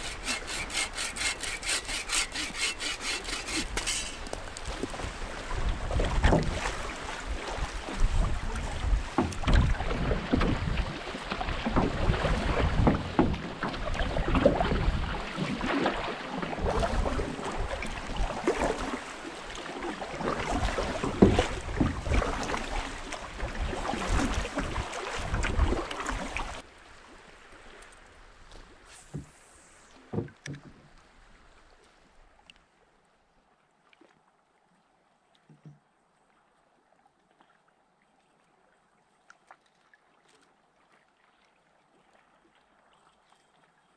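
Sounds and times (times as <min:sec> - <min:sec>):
water splashing against canoe: 0:00.0 - 0:32.4.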